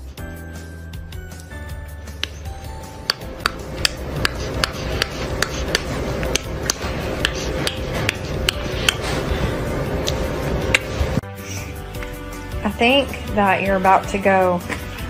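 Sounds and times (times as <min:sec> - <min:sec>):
rapid lip smack kisses: 0:03.1 - 0:09.0.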